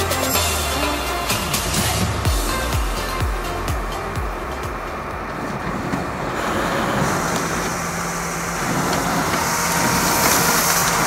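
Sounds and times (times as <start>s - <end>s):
printer mechanical hum: 0.0s - 11.0s
paper hiss: 5.4s - 11.0s.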